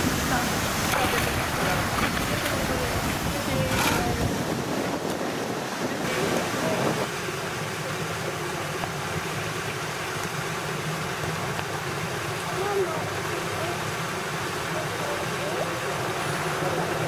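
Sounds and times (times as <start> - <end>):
wind buffeting microphone: 0.0 - 9.6
pool water rushing: 0.0 - 17.0.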